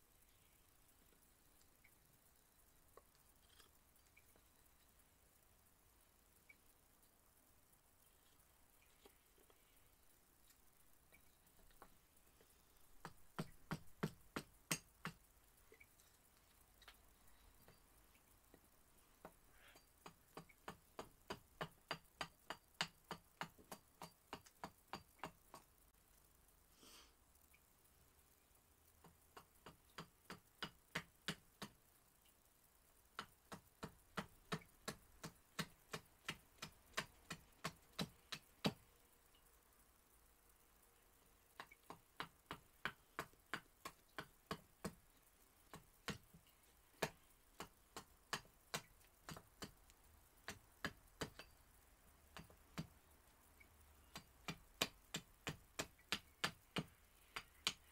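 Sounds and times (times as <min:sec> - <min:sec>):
knife carving wood clicks: 0:13.0 - 0:17.8, 0:19.2 - 0:25.7, 0:29.0 - 0:31.8, 0:33.2 - 0:38.9, 0:41.6 - 0:45.0, 0:45.7 - 0:46.4, 0:47.0 - 0:51.6, 0:52.3 - 0:53.0, 0:54.0 - 0:57.9.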